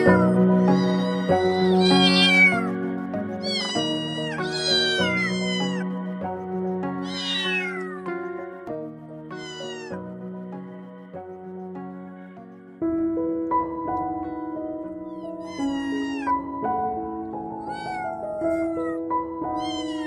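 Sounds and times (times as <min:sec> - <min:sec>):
kittens mewing: 0:00.0 - 0:08.2, 0:09.3 - 0:10.1, 0:14.9 - 0:16.8, 0:17.4 - 0:20.0
soft background music: 0:00.0 - 0:20.0.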